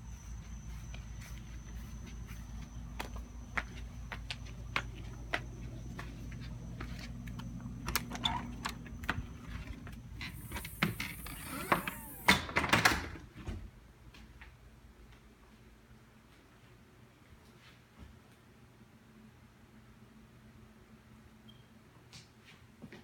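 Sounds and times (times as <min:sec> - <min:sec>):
footsteps: 0:00.0 - 0:12.3
steady low hum: 0:00.0 - 0:12.6.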